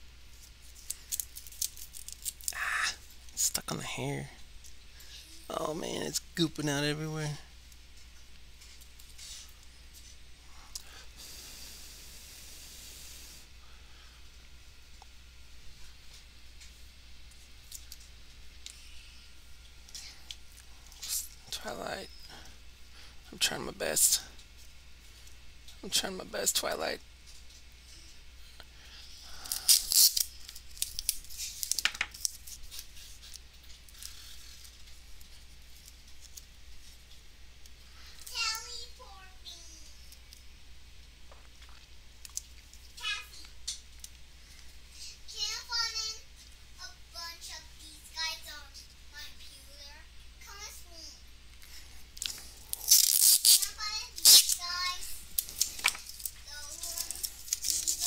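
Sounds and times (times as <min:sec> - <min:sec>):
low electrical hum: 0:00.0 - 0:58.0
tape rustling: 0:00.3 - 0:02.6, 0:29.4 - 0:37.2, 0:52.2 - 0:58.0
soft hiss of rubbing: 0:08.6 - 0:10.7
tape handling clicks: 0:52.2 - 0:54.6.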